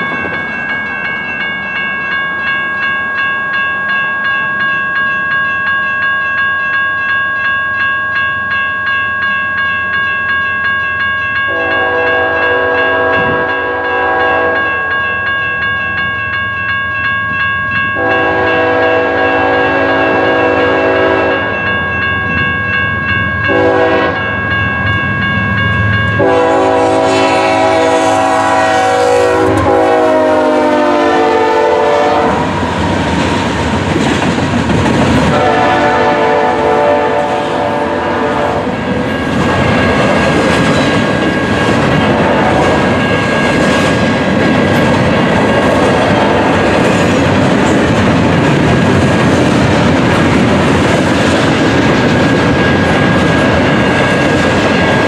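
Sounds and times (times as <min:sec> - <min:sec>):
train rumbling and clattering past: 0:00.0 - 0:07.5, 0:08.5 - 0:55.0
steady ringing tone: 0:00.0 - 0:26.8
locomotive air horn blasts: 0:11.5 - 0:14.7, 0:18.0 - 0:21.5, 0:23.5 - 0:24.2, 0:26.2 - 0:32.5, 0:35.3 - 0:38.7.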